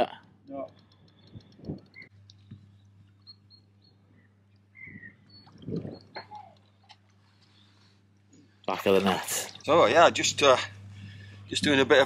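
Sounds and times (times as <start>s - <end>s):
faint lakeside ambience: 0.2s - 12.0s
bird chirps: 0.6s - 7.9s.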